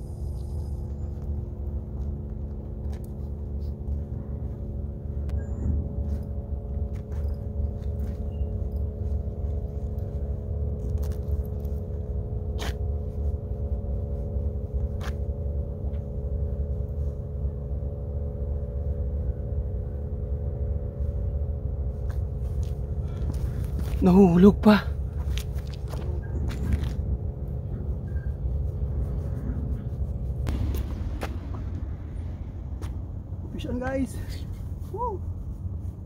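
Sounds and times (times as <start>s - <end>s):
low drone: 0.0s - 36.0s
wind rumbling on microphone: 25.0s - 36.0s.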